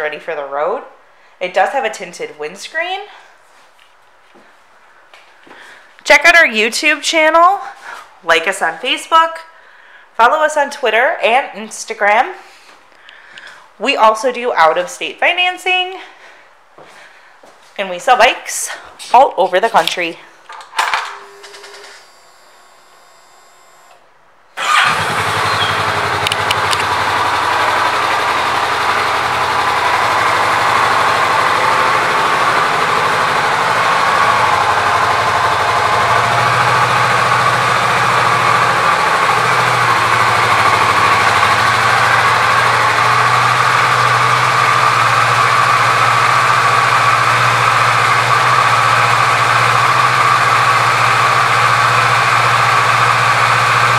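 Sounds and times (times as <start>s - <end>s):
motorcycle engine starting and idling: 21.1s - 24.0s, 24.6s - 53.9s.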